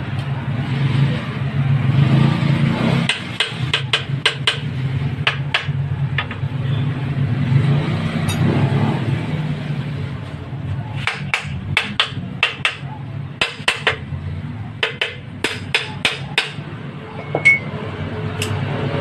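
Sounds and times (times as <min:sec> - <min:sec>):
metal tools clinking: 0:17.2 - 0:17.7.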